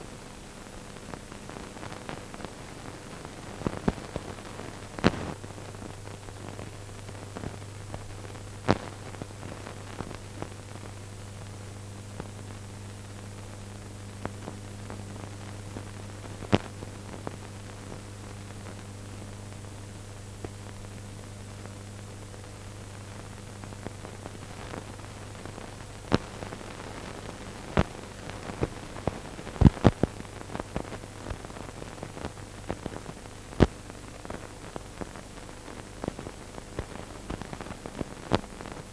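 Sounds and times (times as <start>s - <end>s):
crackling clicks and pops: 0.0s - 38.9s
film soundtrack hiss: 0.0s - 38.9s
low mains hum: 0.0s - 38.9s.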